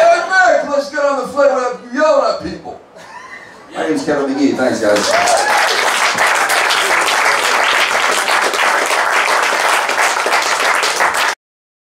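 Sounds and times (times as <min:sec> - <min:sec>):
audience applauding: 0:04.9 - 0:11.4.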